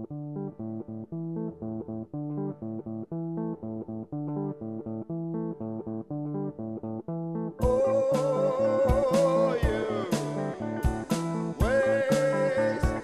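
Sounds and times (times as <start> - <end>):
plucked guitar: 0.0 - 13.0
bass line: 7.6 - 13.0.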